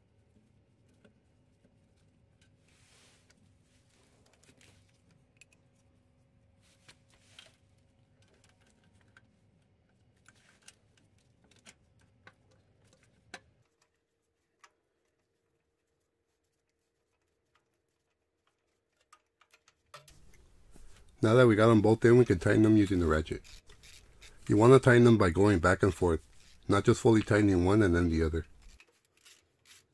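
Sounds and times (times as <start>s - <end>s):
faint metallic clicks and taps: 6.8s - 15.6s, 16.6s - 21.2s.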